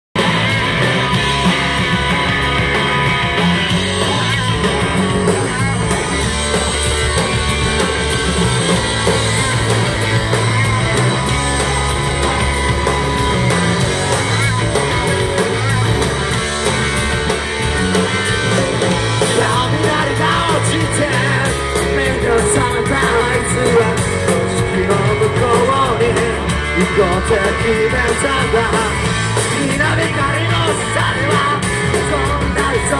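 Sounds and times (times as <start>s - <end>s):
live rock band playing: 0.2s - 32.9s
person singing: 19.2s - 32.9s.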